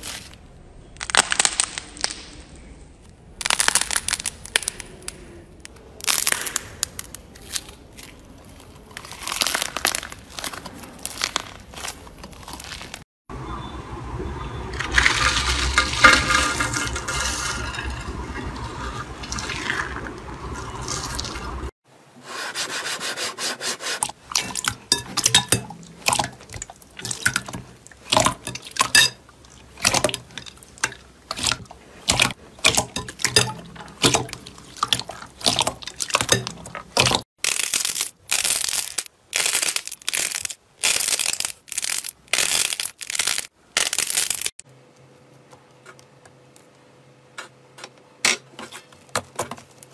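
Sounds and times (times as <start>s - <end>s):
crushing brittle shavings: 3.4s - 5.2s, 6.0s - 13.0s, 34.0s - 44.6s
slime squelching: 23.9s - 44.5s.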